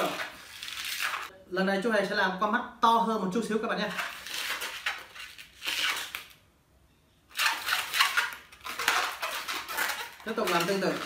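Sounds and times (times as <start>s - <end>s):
rubber balloon squeaking: 0.0s - 1.3s, 3.9s - 6.4s, 7.3s - 11.0s.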